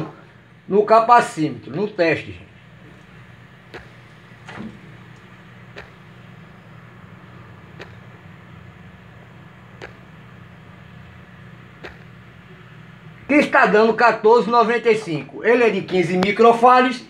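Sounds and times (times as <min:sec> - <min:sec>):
low steady hum: 0:00.0 - 0:17.0
faint ticks: 0:03.7 - 0:04.2, 0:05.1 - 0:06.2, 0:07.7 - 0:08.2, 0:09.7 - 0:10.2, 0:11.8 - 0:12.2.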